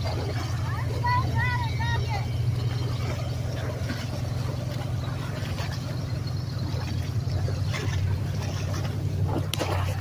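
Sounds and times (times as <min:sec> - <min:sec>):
airboat engine droning: 0:00.0 - 0:10.0.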